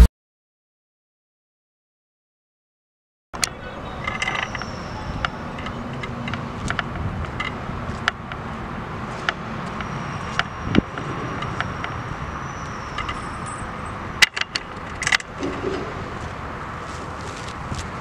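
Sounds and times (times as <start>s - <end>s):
sharp clicks and knocks: 3.4s - 8.4s, 14.2s - 16.0s.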